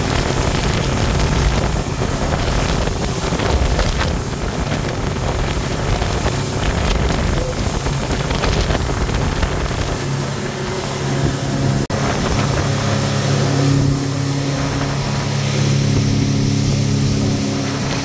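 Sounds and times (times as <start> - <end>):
rush of wind and water: 0.0 - 18.0
speedboat engine running: 0.0 - 18.0.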